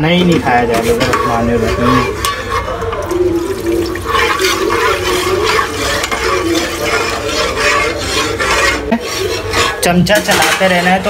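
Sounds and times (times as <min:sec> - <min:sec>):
metal spoon scraping pot: 0:00.0 - 0:11.0
milk pouring and splashing: 0:02.8 - 0:08.5.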